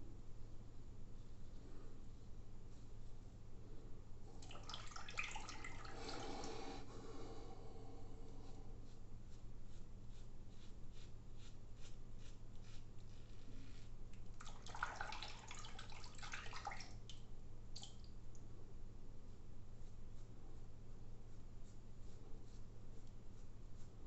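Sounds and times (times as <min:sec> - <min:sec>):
running water splashing: 0:04.4 - 0:06.6, 0:14.4 - 0:17.0.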